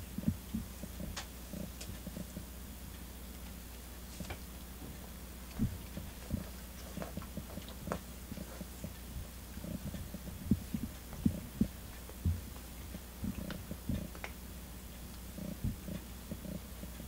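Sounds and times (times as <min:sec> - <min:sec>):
low steady hum: 0:00.0 - 0:17.0
cat licking fur: 0:05.4 - 0:14.3.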